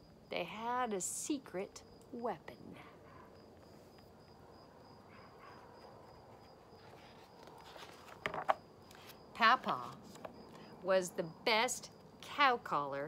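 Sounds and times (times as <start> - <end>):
cricket trill: 0.0 - 12.7
book page turning: 5.8 - 10.3.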